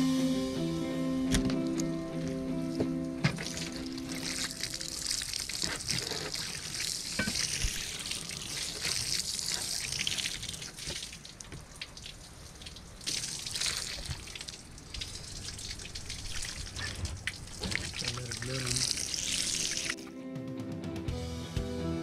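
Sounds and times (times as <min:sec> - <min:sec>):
water running and trickling: 0:03.2 - 0:20.0.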